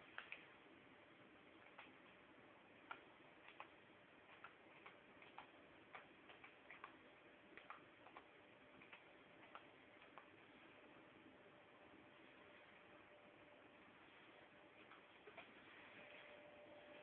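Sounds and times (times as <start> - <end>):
faint irregular clicks: 0.0 - 0.6, 1.6 - 10.7
low hiss: 0.0 - 17.0.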